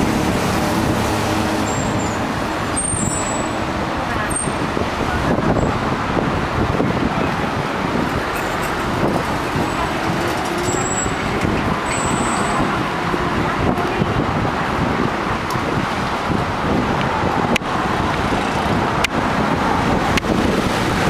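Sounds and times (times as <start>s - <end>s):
road traffic: 0.0s - 21.0s.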